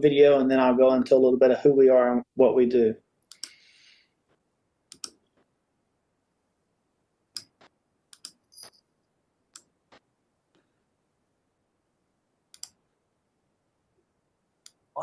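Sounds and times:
mouse and keyboard clicks: 3.3s - 3.6s, 4.9s - 5.2s, 7.4s - 8.4s, 12.5s - 12.8s.

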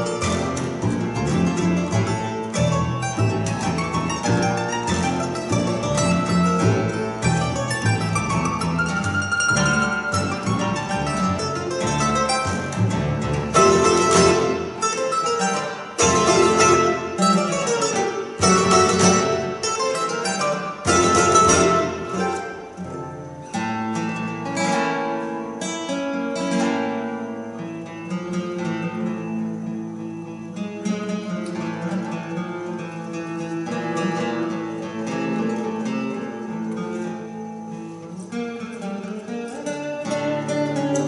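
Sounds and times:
double bass: 0.0s - 25.6s
acoustic guitar: 0.0s - 41.0s
mandolin: 0.0s - 41.0s.

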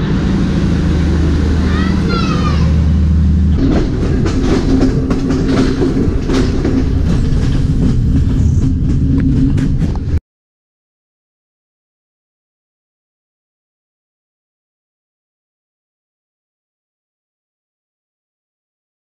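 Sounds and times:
train engine rumble: 0.0s - 10.2s
train wheels clattering on rails: 3.3s - 10.2s.

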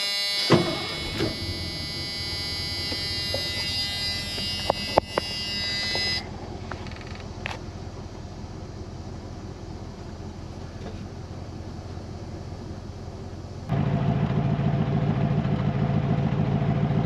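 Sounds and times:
electric warning buzzer: 0.0s - 6.3s
truck engine running: 0.0s - 17.0s
thump: 0.5s - 1.5s.

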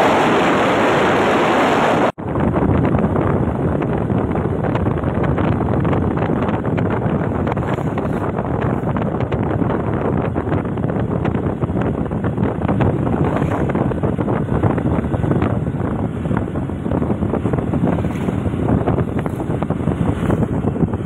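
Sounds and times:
ride rumble: 0.0s - 21.0s
wind buffeting microphone: 0.0s - 21.0s.

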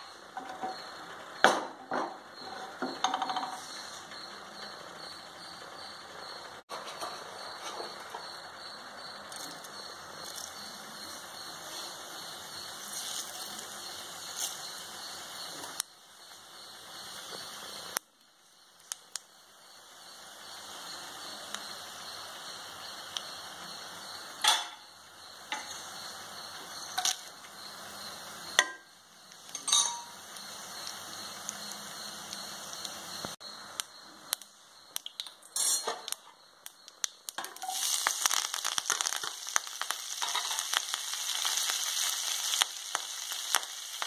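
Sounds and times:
hot oil sizzling: 0.0s - 44.0s
seeds popping in oil: 9.3s - 24.5s, 25.2s - 44.0s.

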